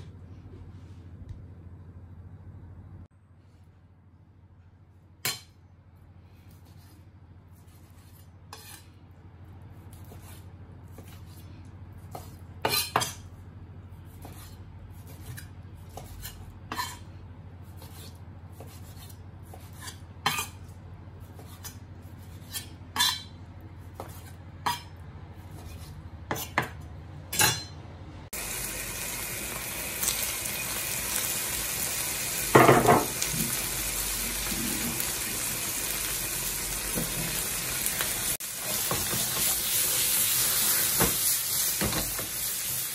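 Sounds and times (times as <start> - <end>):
beef sizzling in frying pan: 28.4 - 42.9.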